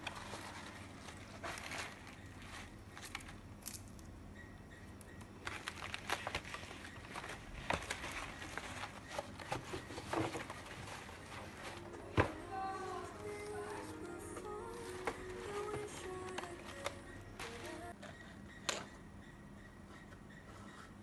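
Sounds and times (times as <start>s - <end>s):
paper rustling: 0.0s - 3.4s, 5.4s - 18.0s.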